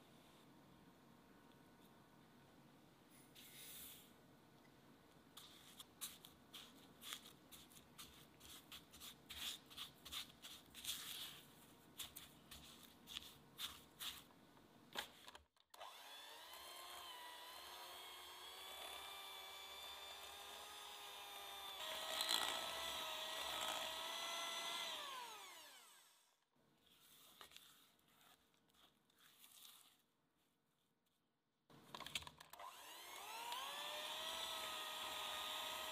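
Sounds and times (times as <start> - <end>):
electric hand mixer whine: 15.8 - 26.3, 32.6 - 35.9.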